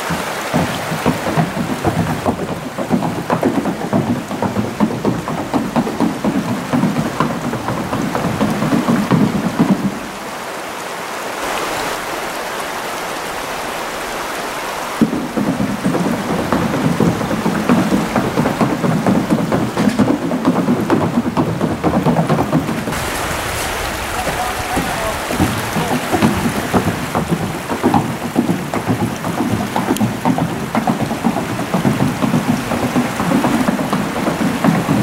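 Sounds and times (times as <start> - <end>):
wind buffeting microphone: 11.4 - 35.0.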